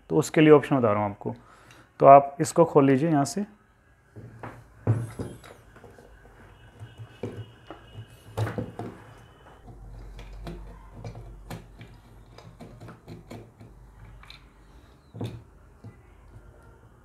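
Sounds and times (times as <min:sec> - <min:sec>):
screwdriver clicks and taps: 0:09.6 - 0:14.5.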